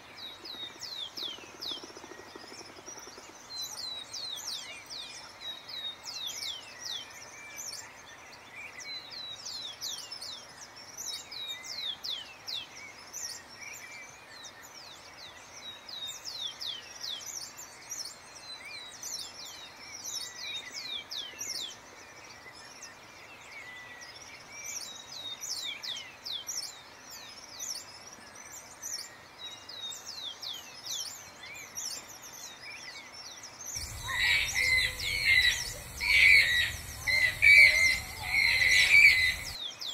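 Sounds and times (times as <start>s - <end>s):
bird song with falling notes: 33.8s - 39.6s.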